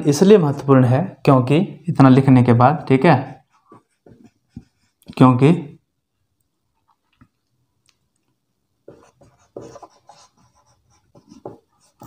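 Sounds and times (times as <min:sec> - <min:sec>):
marker scratching on whiteboard: 0:03.3 - 0:05.0, 0:08.8 - 0:12.0.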